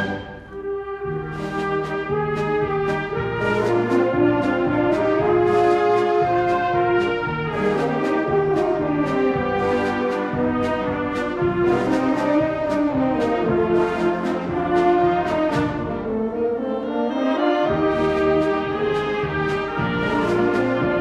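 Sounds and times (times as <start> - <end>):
concert band playing: 0.0 - 21.0.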